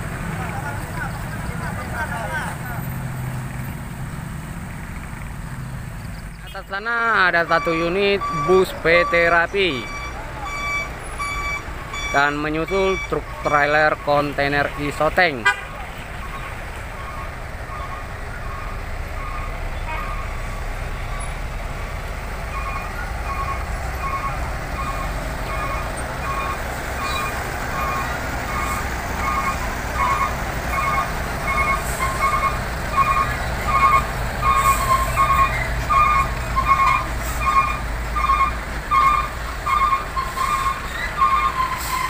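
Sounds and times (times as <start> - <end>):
heavy vehicle engines running: 0.0 - 42.0
electronic warning beeper: 7.4 - 14.4, 22.5 - 40.0.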